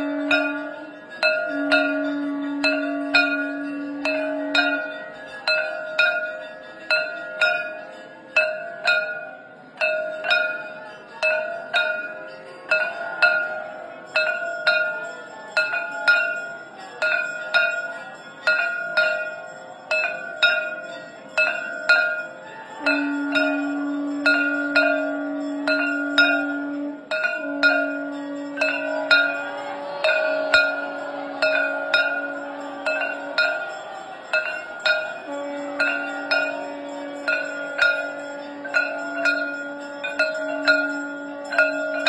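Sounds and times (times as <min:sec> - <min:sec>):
conch shell blown: 0:00.0 - 0:05.2, 0:21.4 - 0:42.0
hand bell ringing: 0:00.0 - 0:42.0.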